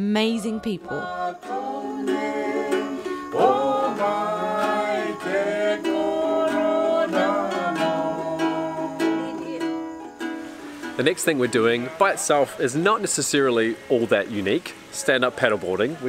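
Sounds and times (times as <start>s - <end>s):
voices singing: 0.0s - 16.0s
ukulele strumming: 0.4s - 16.0s.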